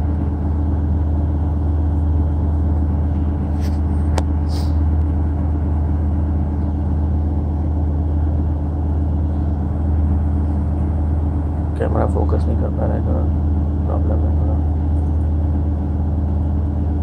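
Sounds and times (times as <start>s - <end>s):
low mechanical hum: 0.0s - 17.0s.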